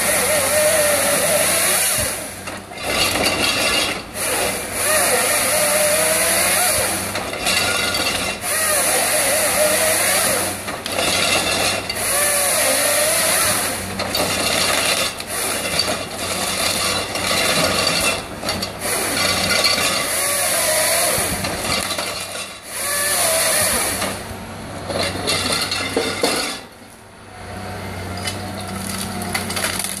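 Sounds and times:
bar saw screaming through log: 0.0 - 24.3
diesel engine revving: 0.0 - 30.0
feed rollers driving log: 0.0 - 30.0.

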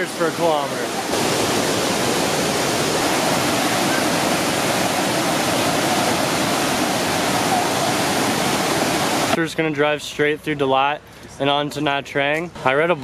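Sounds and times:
waterfall rushing: 0.0 - 9.4.

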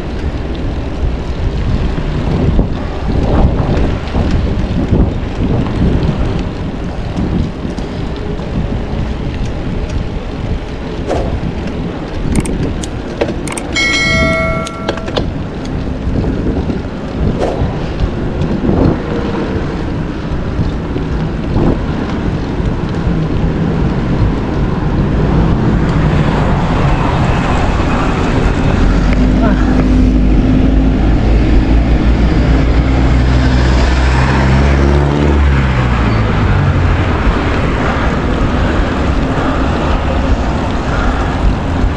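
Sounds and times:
bicycle tyre and road noise: 0.0 - 41.9
wind rushing over microphone: 0.0 - 41.9
bell-like ding: 13.8 - 15.3.

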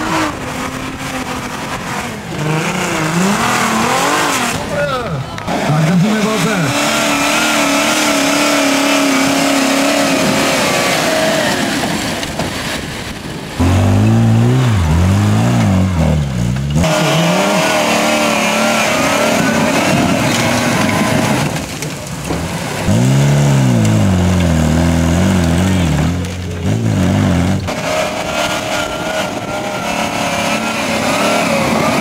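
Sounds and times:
off-road engines revving: 0.0 - 32.0.

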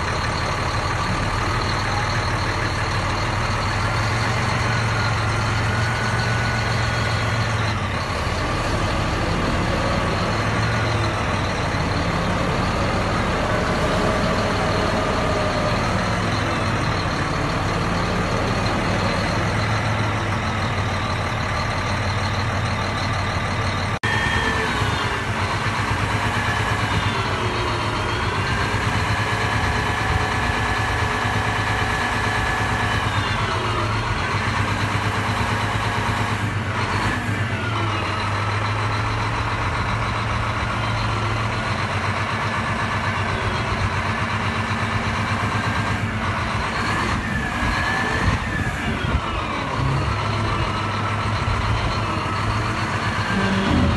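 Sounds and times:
diesel engine idling: 0.0 - 53.9.

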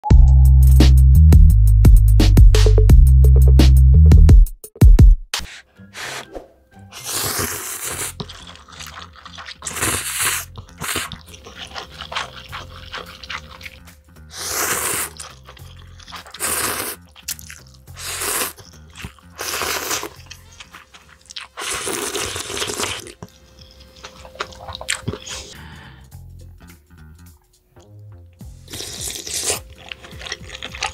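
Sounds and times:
background music: 0.0 - 30.9
person slurping noodles: 5.4 - 23.3, 24.0 - 25.6, 28.6 - 30.9.

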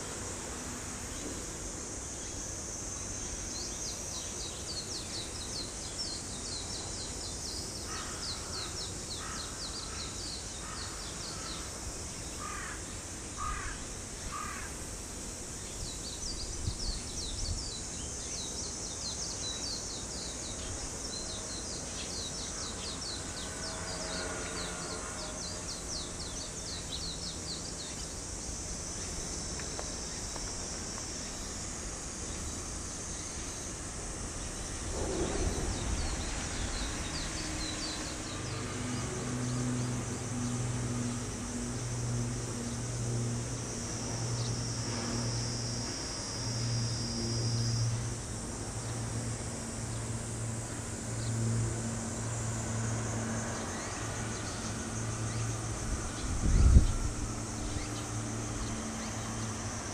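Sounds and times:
high insect chirring: 0.0 - 59.9
outdoor background noise: 0.0 - 59.9
crow cawing: 12.4 - 12.8, 13.4 - 14.7.

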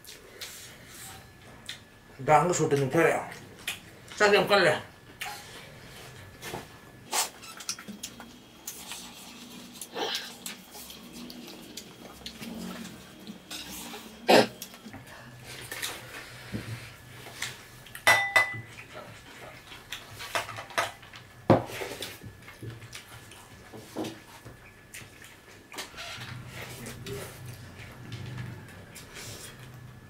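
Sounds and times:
plates and dishes knocking: 18.1 - 18.6.

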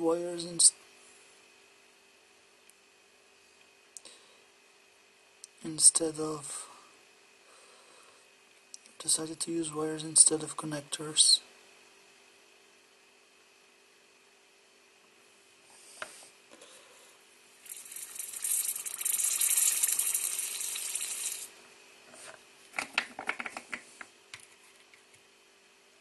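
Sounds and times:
soldering iron hissing: 17.6 - 21.5.

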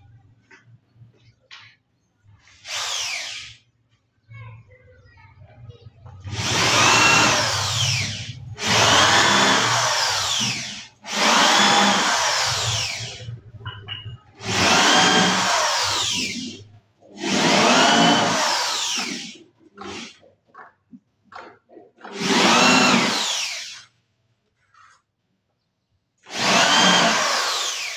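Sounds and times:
electric drill driving screws: 2.6 - 3.6, 6.3 - 13.3, 14.4 - 16.6, 17.2 - 20.2, 22.0 - 23.9, 26.3 - 27.9.

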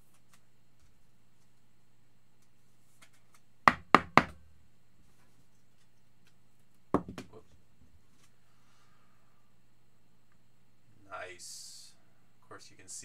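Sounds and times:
knocks on a tabletop: 7.0 - 7.4.

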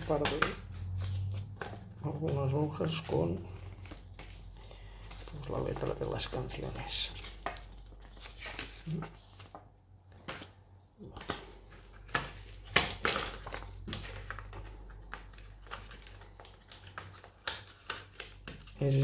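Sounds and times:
paper rustling: 0.0 - 19.0.

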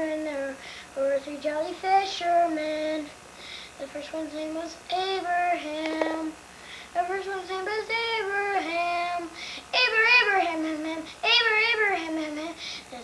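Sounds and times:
boy singing: 0.0 - 3.2, 3.8 - 6.4, 7.0 - 13.0.

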